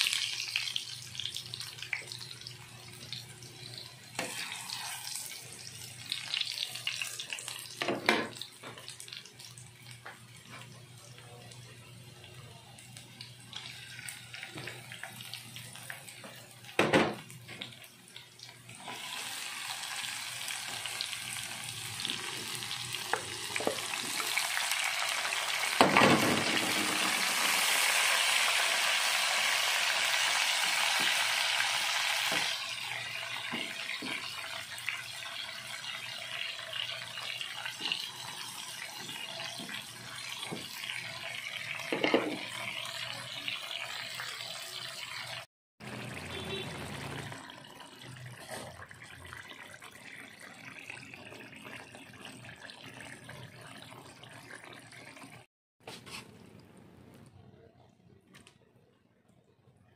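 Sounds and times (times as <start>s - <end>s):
food sizzling in oil: 0.0s - 10.8s, 12.9s - 47.6s.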